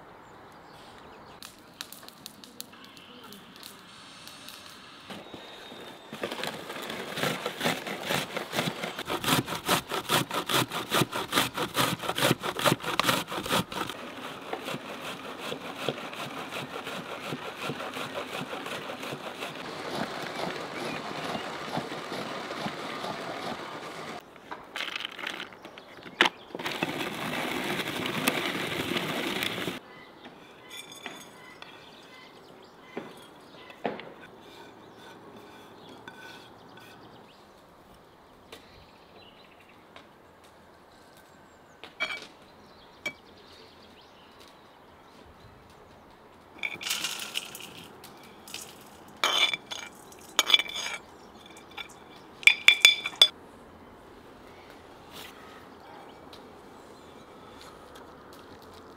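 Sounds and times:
metal spoon clinking on bowls: 49.2s - 53.3s.

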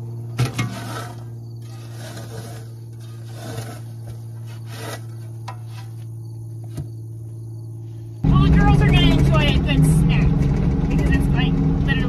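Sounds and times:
steady low hum: 0.0s - 12.0s
shovel scraping and knocking: 0.4s - 6.1s.

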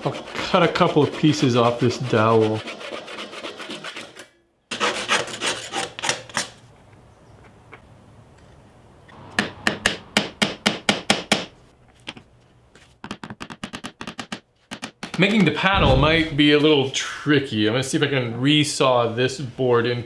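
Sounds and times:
sandpaper rubbing on wood: 0.0s - 4.0s.

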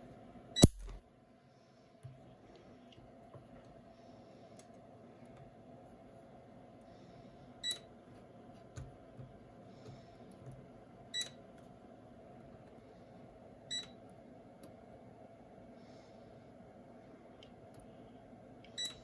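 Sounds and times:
low steady hum: 0.0s - 19.0s
spot welder beeping clicks: 0.6s - 1.0s, 11.2s - 11.4s, 18.7s - 19.0s.

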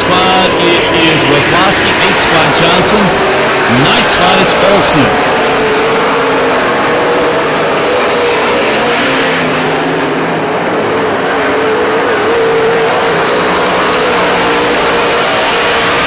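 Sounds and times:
race car engines: 0.0s - 16.0s.

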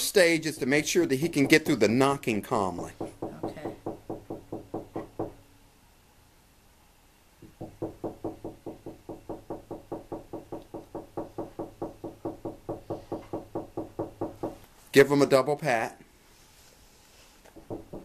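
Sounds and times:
rapid knocking on a door: 0.0s - 2.1s, 2.7s - 5.4s, 7.4s - 14.6s, 17.6s - 18.0s.

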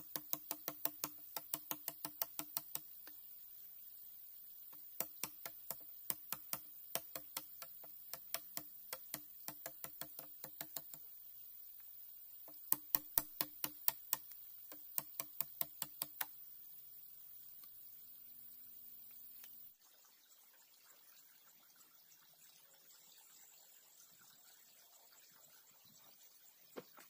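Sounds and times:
sharp strikes on bamboo: 5.0s - 10.9s, 12.7s - 16.3s.

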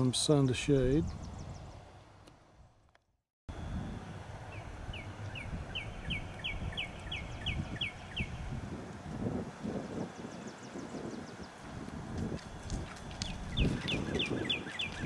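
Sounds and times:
songbird whistling: 4.5s - 8.4s, 12.5s - 15.0s.

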